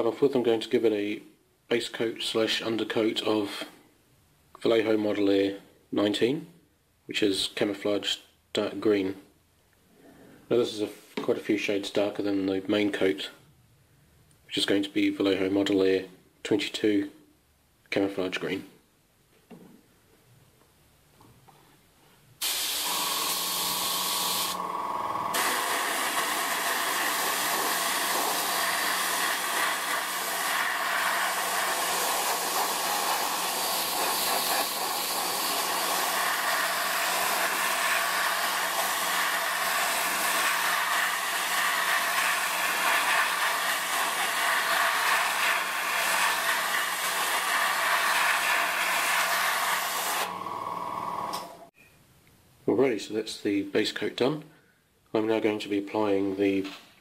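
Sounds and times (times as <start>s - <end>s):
airbrush spraying hiss: 22.4s - 24.6s, 25.3s - 50.3s.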